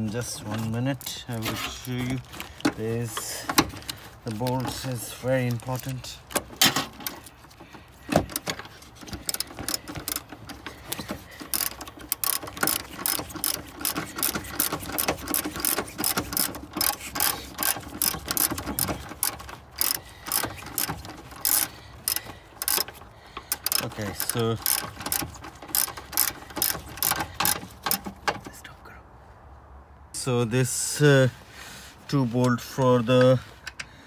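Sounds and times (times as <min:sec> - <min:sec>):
ratchet wrench clicking: 0:08.2 - 0:28.1.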